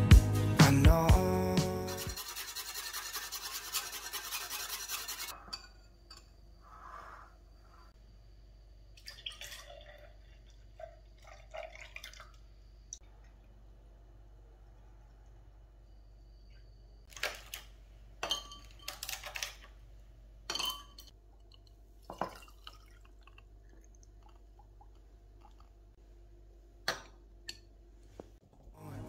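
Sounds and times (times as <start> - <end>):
faint steady hum: 5.4 - 29.0
liquid pouring and dripping: 9.0 - 13.7, 21.3 - 25.9
glass and ice clinking: 18.2 - 19.2, 20.5 - 21.2, 22.1 - 23.1.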